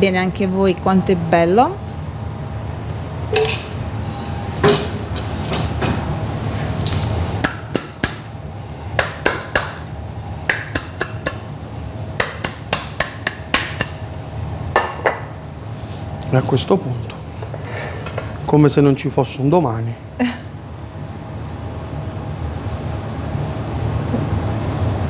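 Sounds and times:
kitchen ventilation hum: 0.0s - 25.0s
palm tapping plate underside: 10.5s - 11.5s, 12.2s - 14.0s.

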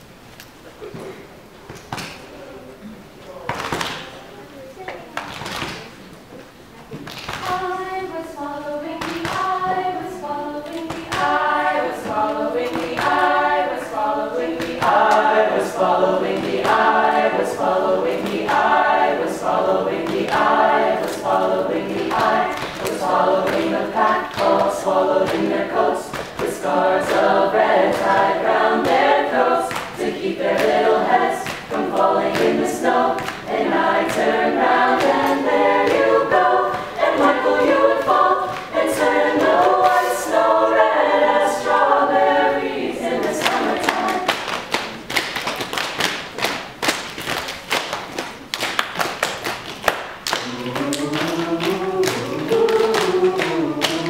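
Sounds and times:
choir singing a cappella: 7.4s - 44.8s, 50.3s - 54.0s.

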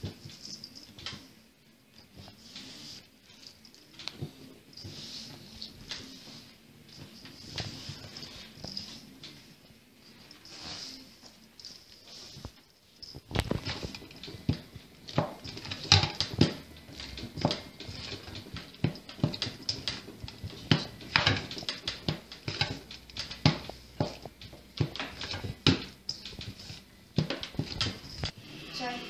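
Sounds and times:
hands kneading dough in metal bowl: 10.3s - 28.4s.

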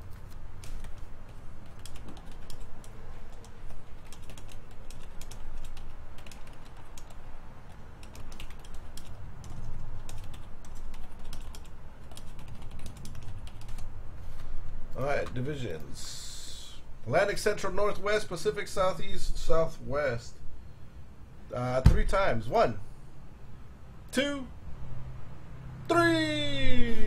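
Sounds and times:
computer keyboard key clicks: 1.6s - 7.2s.

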